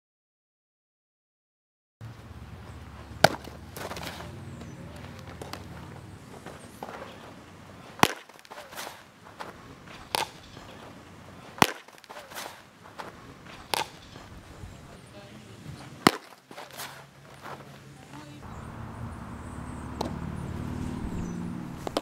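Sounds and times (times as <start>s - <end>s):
baseball smacking into mitt: 3.1s - 14.4s, 15.7s - 17.6s, 20.0s - 20.2s, 21.8s - 22.0s.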